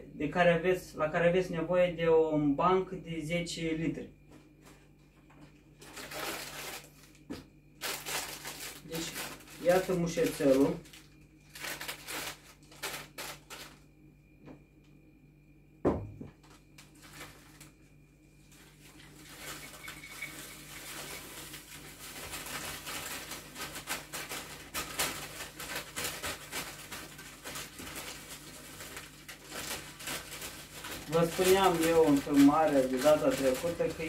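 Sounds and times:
paper bag rustling: 5.5 - 13.8, 16.4 - 34.0
thump: 15.8 - 16.4
dried flowers poured into glass jar: 19.0 - 23.8, 27.0 - 34.0.

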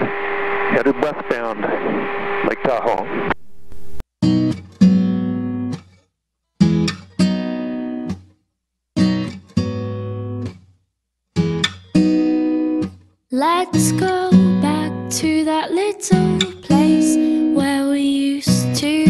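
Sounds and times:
acoustic guitar strumming chords: 4.2 - 5.9, 6.6 - 8.3, 9.0 - 10.6, 11.4 - 19.0.

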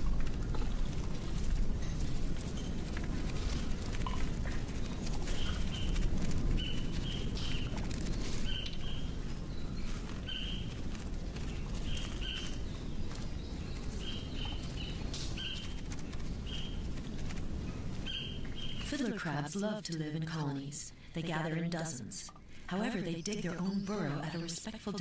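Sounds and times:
steady low rumble: 0.0 - 25.0.

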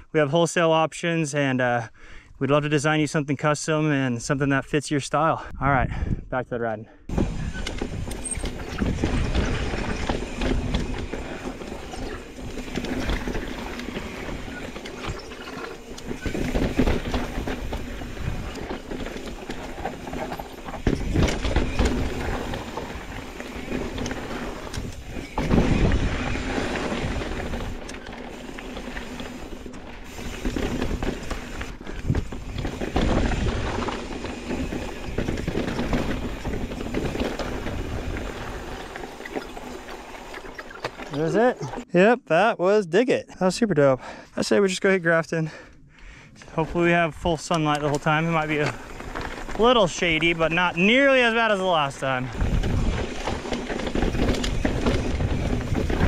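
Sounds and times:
bike jolts: 6.9 - 41.9, 45.4 - 56.0
bike rattling: 7.1 - 41.9, 46.6 - 56.0
bike tyres on dirt and rock: 7.1 - 41.9, 44.8 - 56.0.

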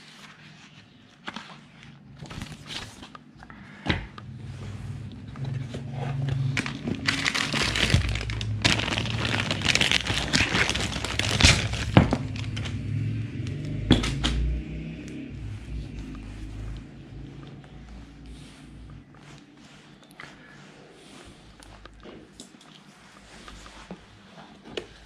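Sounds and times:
plastic wrapping crinkling: 5.5 - 12.9.

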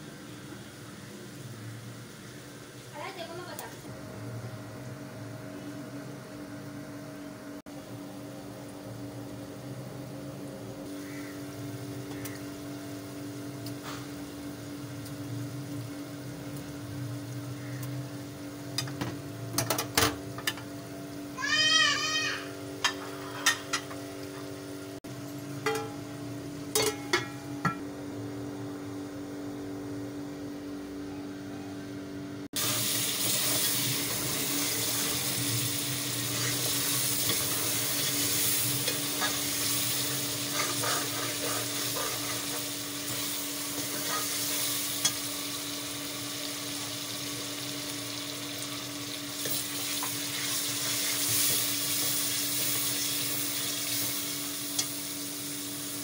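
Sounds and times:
food sizzling and bubbling in a pot: 0.0 - 30.8, 32.6 - 56.0.

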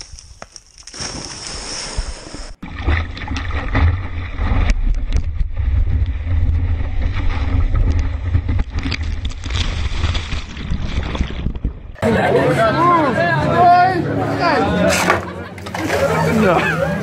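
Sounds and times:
splashy crackles: 2.6 - 11.9.

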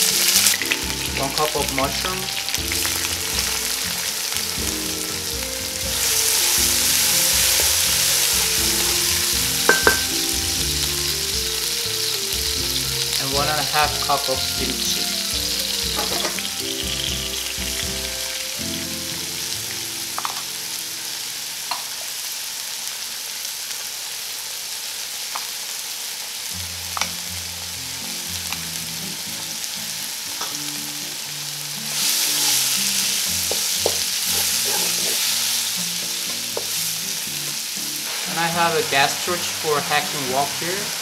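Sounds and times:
soft background music: 0.0 - 21.4, 26.8 - 41.0
vegetables sizzling in hot oil: 0.0 - 41.0
wooden spatula tapping: 9.6 - 10.2, 33.4 - 35.0, 36.2 - 36.8.

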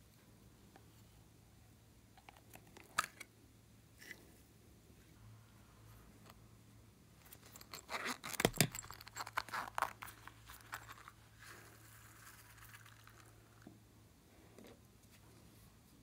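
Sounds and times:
zipper rasping open: 7.3 - 11.2.

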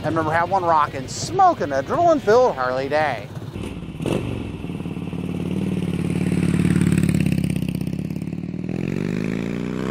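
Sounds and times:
motorcycle engine revving: 3.3 - 9.9.

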